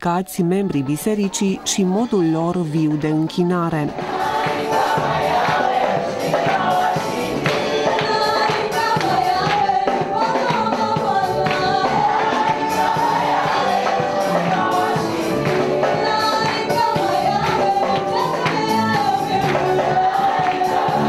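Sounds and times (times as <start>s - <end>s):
percussion beat: 3.7s - 21.0s
congregation singing a hymn: 3.9s - 21.0s
hand-clapping: 7.4s - 9.8s, 10.4s - 12.6s, 16.4s - 20.9s.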